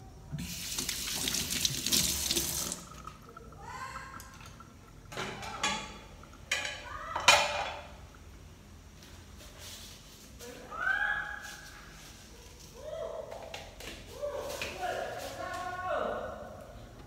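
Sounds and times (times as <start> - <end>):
water running from tap: 0.4 - 7.7
pots and pans clanking: 5.1 - 8.0.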